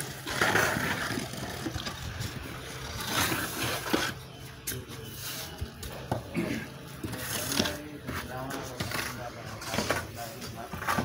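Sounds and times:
straightedge scraping wet mortar: 0:00.0 - 0:02.0, 0:02.6 - 0:04.3.

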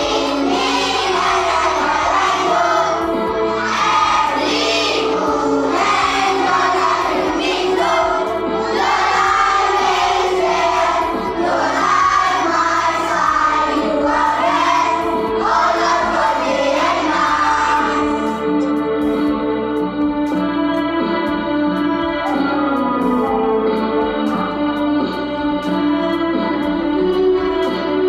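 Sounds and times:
children singing a prayer: 0:00.0 - 0:18.5
keyboard sustained chords: 0:00.0 - 0:28.0.

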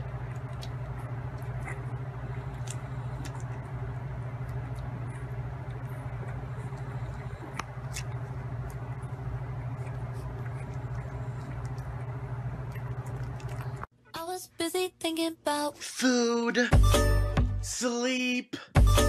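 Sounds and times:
puppies suckling wet smacking: 0:00.0 - 0:13.9
steady low hum: 0:00.0 - 0:14.0.

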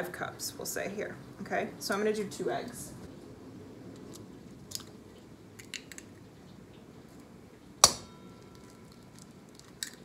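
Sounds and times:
metal bowl ringing: 0:07.8 - 0:09.2.

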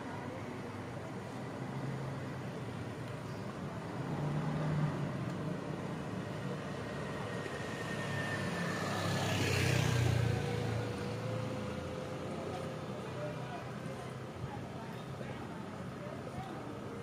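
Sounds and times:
motor scooter engine passing: 0:07.0 - 0:11.8.

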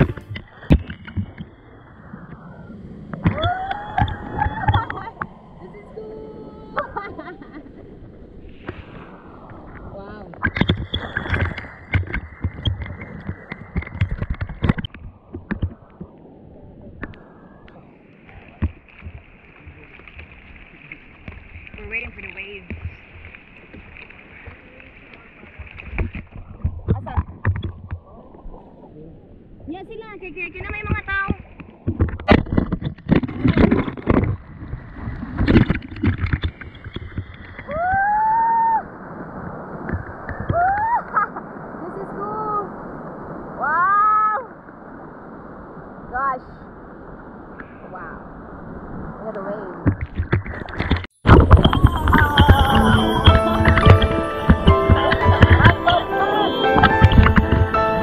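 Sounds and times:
sea water splashing: 0:00.0 - 0:58.0
loud held tone: 0:51.3 - 0:58.0.

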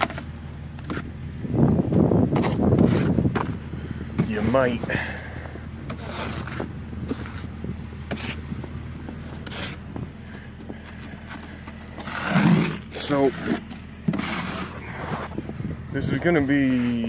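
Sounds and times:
steady low hum: 0:00.0 - 0:17.0
brush scraping snow: 0:02.3 - 0:03.6, 0:05.9 - 0:08.4, 0:09.3 - 0:09.9, 0:10.8 - 0:15.4.

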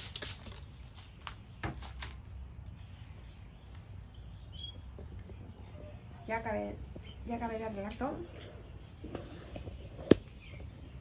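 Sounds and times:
spray bottle spritzing: 0:00.0 - 0:00.6.

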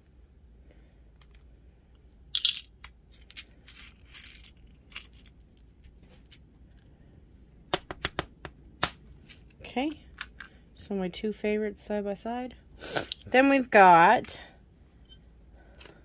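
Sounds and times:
glass beads rattling: 0:02.4 - 0:05.3.

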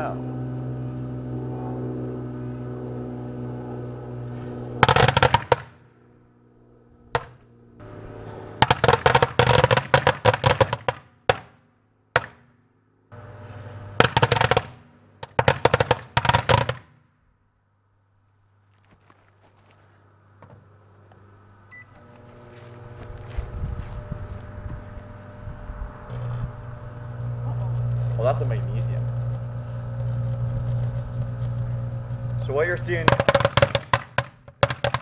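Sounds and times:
firecrackers cracking: 0:04.8 - 0:05.8, 0:08.6 - 0:11.5, 0:13.9 - 0:16.9, 0:30.4 - 0:35.0
microwave oven humming: 0:06.2 - 0:08.7, 0:13.1 - 0:15.2, 0:20.2 - 0:33.7.

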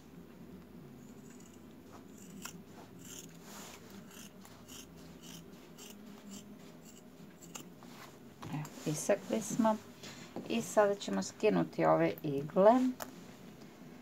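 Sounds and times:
scissors snipping denim: 0:02.1 - 0:03.3.

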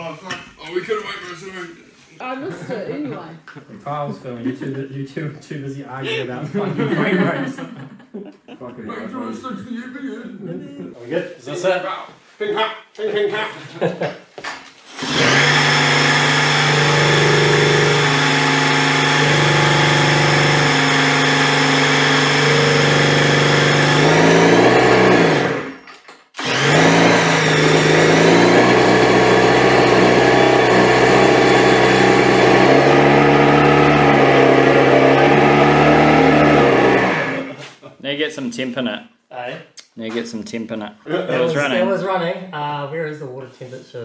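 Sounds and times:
two-stroke race engine running: 0:15.0 - 0:25.8, 0:26.4 - 0:37.5.

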